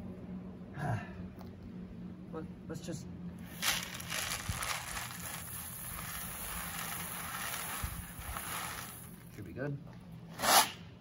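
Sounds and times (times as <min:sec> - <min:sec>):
gravel poured from plastic bucket: 0:03.5 - 0:09.3.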